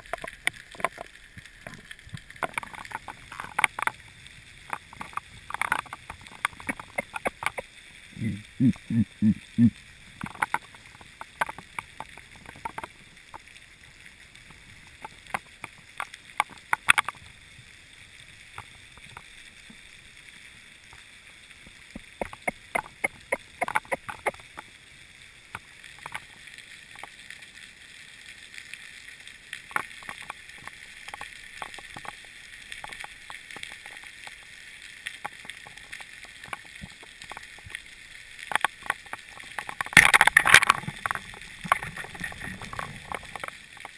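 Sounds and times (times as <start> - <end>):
sharp underwater clicks: 0.0 - 13.6, 14.4 - 17.2, 21.9 - 24.8, 25.5 - 27.2, 29.6 - 37.8, 38.4 - 43.9.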